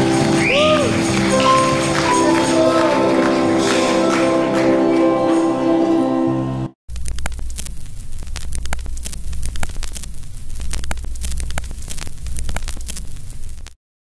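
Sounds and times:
music: 0.0s - 6.8s
television static crackling hiss: 6.9s - 13.8s.

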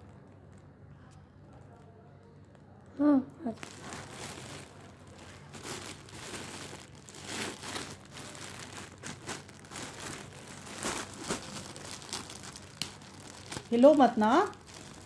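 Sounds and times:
plastic bag crinkling: 3.4s - 15.0s.

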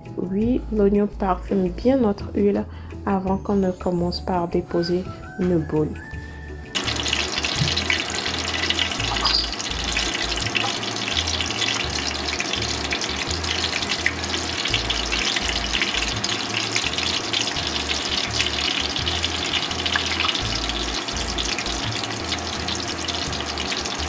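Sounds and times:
hot oil sizzling and crackling: 6.7s - 24.0s.

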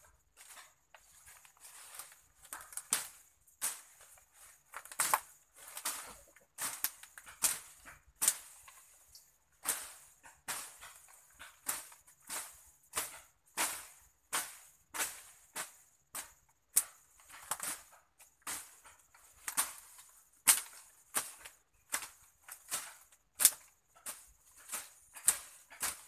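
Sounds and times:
leaves rustling: 0.0s - 16.4s, 17.3s - 26.0s
machete chopping through brush: 11.6s - 16.2s, 20.4s - 26.0s.

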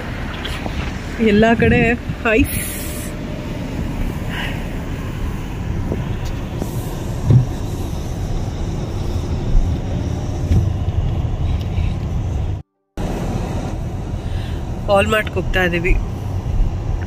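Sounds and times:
engine and tyre rumble: 0.0s - 17.0s
tyre hiss on wet road: 2.5s - 3.2s, 4.2s - 10.2s
low thump: 5.9s - 7.6s, 10.4s - 10.9s.

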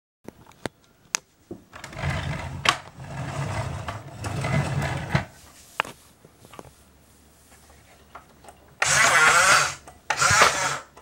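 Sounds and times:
toy car motor whirring: 8.8s - 11.0s.

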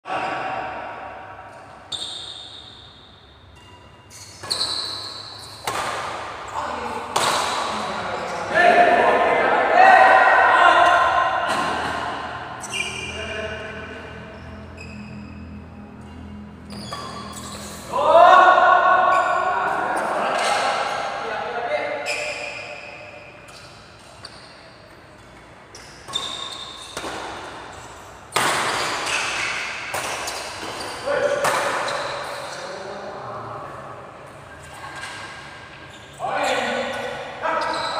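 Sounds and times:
badminton racket hitting shuttlecock: 3.6s - 6.4s, 7.1s - 7.7s, 28.3s - 31.9s.

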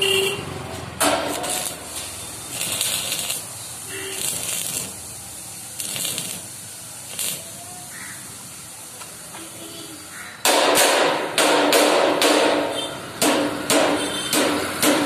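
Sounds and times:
hammer striking steel: 1.0s - 1.9s, 10.4s - 15.0s
steel ringing: 1.0s - 5.0s.

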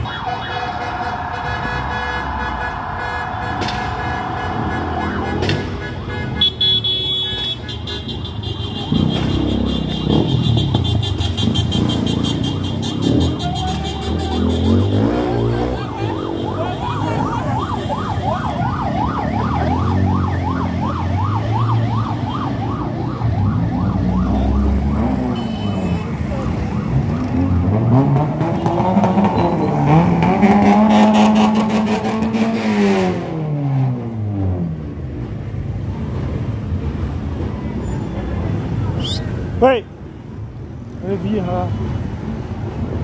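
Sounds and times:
electronic yelp siren: 0.0s - 6.1s, 12.1s - 27.6s
cars and scooters passing: 0.0s - 43.0s.

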